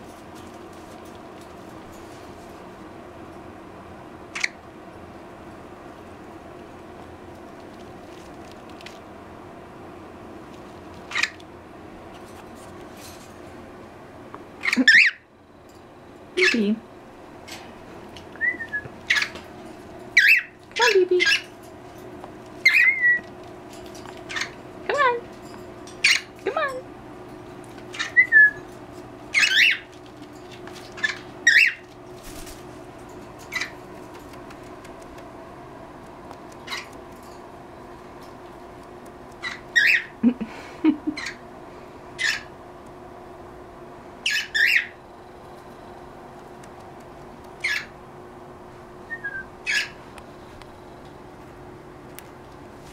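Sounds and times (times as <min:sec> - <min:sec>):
faint room hum: 0:00.0 - 0:52.9
parrot chirp: 0:11.1 - 0:11.4, 0:14.6 - 0:15.3, 0:16.4 - 0:16.7, 0:18.4 - 0:19.4, 0:20.2 - 0:21.5, 0:22.6 - 0:23.3, 0:24.3 - 0:24.6, 0:26.0 - 0:26.3, 0:27.9 - 0:28.6, 0:29.3 - 0:29.9, 0:31.0 - 0:31.9, 0:36.6 - 0:37.0, 0:39.4 - 0:40.2, 0:42.2 - 0:42.5, 0:44.2 - 0:45.0, 0:47.6 - 0:48.0, 0:49.1 - 0:50.0.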